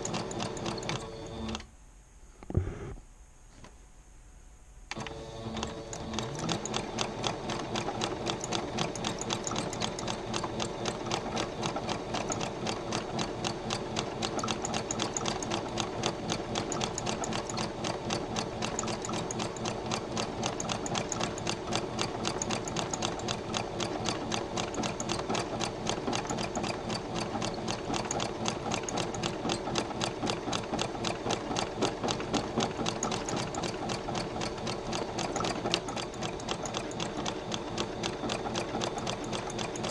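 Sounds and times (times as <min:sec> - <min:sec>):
sewing machine stitching: 0:00.0 - 0:01.7, 0:04.9 - 0:39.9.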